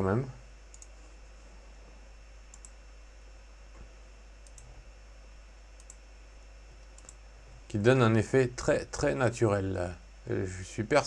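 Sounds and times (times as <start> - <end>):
low steady hum: 0.0 - 11.0
faint mouse clicks: 0.7 - 1.0, 2.5 - 2.8, 3.8 - 4.8, 5.8 - 6.0, 6.8 - 7.2.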